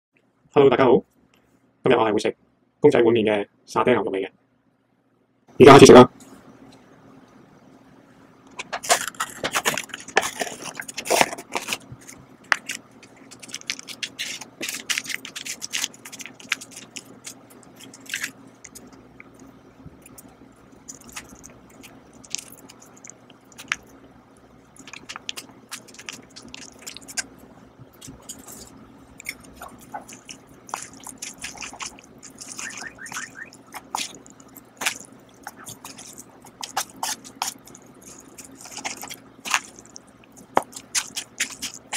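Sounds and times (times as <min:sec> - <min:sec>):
sachets crinkling and tearing: 0:08.8 - 0:19.0, 0:20.0 - 0:23.9, 0:24.8 - 0:27.4, 0:28.0 - 0:41.9
eating sounds: 0:08.8 - 0:41.9.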